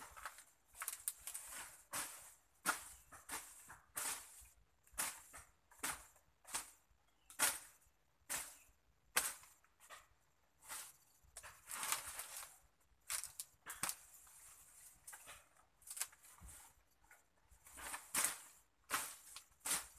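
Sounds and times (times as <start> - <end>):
machete chopping undergrowth: 1.5 - 9.6, 17.8 - 19.9.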